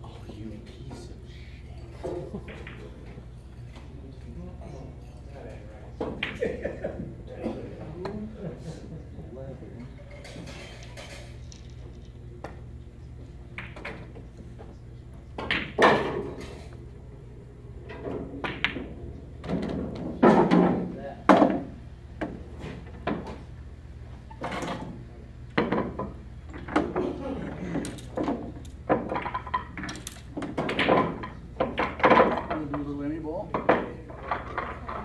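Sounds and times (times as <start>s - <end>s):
low steady hum: 0.0s - 35.0s
pool balls clacking: 2.0s - 4.0s, 5.4s - 7.1s, 9.9s - 16.9s, 17.5s - 23.6s, 24.3s - 35.0s.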